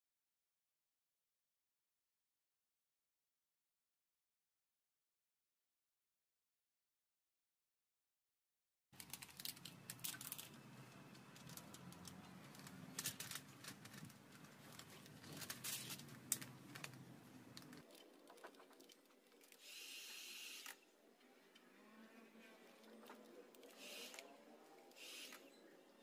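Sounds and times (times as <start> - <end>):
plastic film crinkling and clicking: 9.0 - 19.6.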